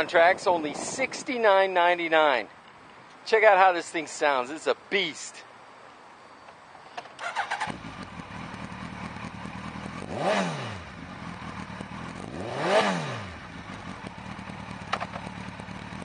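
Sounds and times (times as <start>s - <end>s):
motorcycle throttle blips: 7.2s - 16.0s
motorcycle engine idling: 7.3s - 12.4s, 13.1s - 16.0s.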